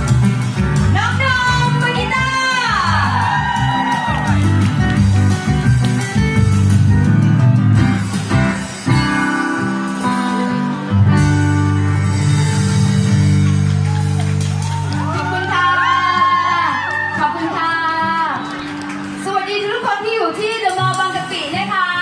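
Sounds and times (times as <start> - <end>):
low bass notes: 0.0 - 16.6
acoustic guitar chords: 4.3 - 16.7.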